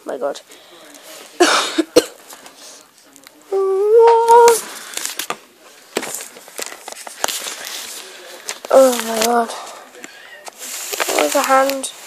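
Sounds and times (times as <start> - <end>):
rustle of handling: 4.2 - 12.0.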